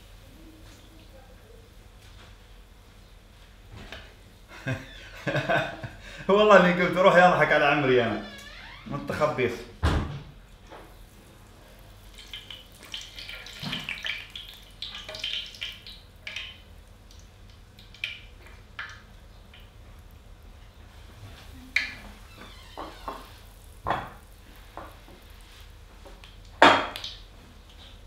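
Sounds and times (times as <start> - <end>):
dough frying in hot oil: 9.9 - 28.0
oil popping: 10.8 - 20.2, 21.7 - 27.8.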